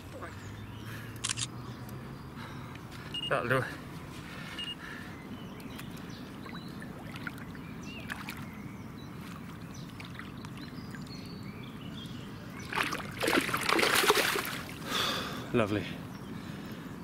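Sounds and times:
water sloshing and lapping: 5.6s - 14.9s.

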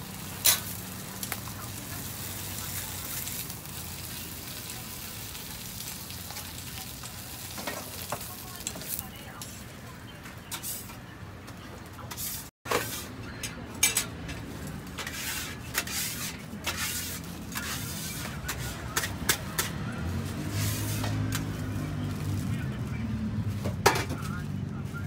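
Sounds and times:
meat sizzling on griddle: 0.0s - 9.4s, 15.1s - 19.4s.

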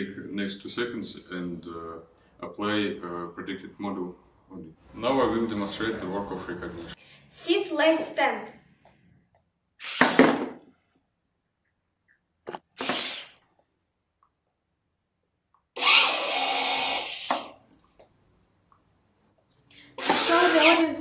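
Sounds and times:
servo motors whirring: 15.8s - 17.5s, 20.0s - 20.8s.

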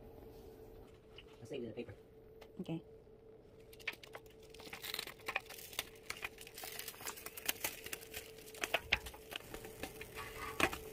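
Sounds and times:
faint steady hum: 0.0s - 10.9s
hot sugar crackling on foil: 3.5s - 10.9s.

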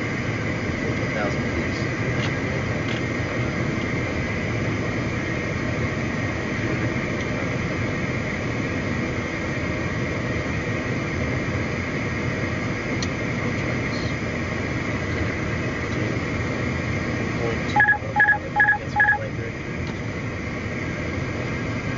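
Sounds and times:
jet airflow and engine noise: 0.0s - 21.9s.

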